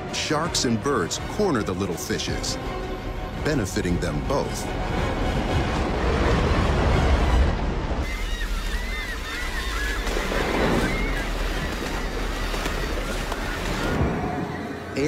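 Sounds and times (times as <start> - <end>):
wind: 4.2 - 15.0
waves washing: 4.3 - 15.0
seabirds calling: 5.4 - 15.0.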